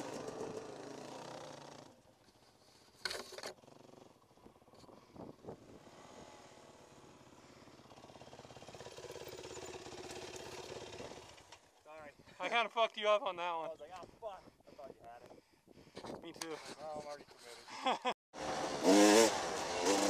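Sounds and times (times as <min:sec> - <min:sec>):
dirt bike engine: 0:00.0 - 0:13.7, 0:18.4 - 0:20.0.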